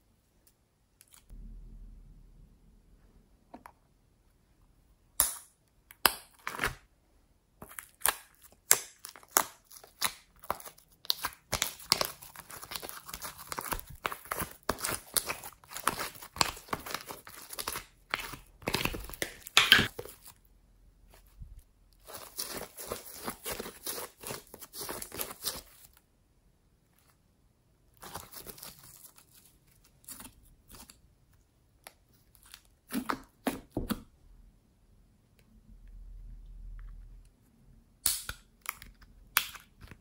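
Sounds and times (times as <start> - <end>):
slime sticky crackling: 7.8 - 20.3.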